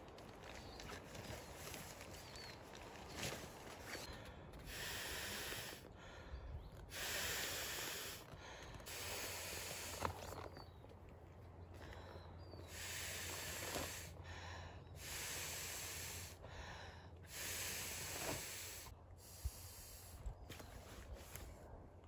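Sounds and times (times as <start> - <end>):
puffs of air blown into valve: 4.6 - 5.8, 6.8 - 10.4, 12.6 - 14.2, 15.0 - 16.4, 17.2 - 20.3.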